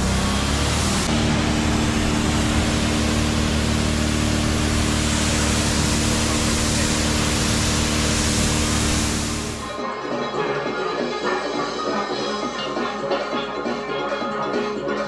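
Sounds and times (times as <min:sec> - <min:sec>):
pressure washer motor humming: 0:00.0 - 0:09.7
water jet hissing on hull: 0:00.7 - 0:09.6.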